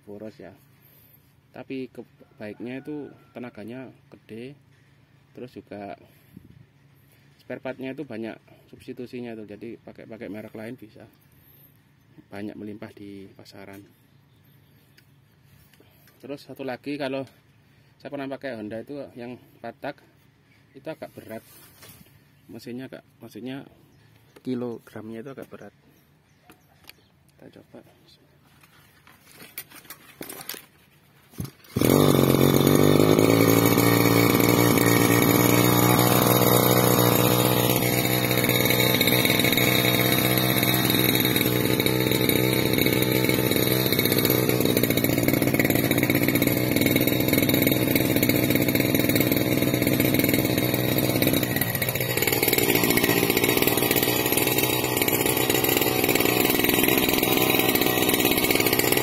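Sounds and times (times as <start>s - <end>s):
starter cord pulls: 31.3s - 59.0s
brush cutter engine running: 31.4s - 59.0s.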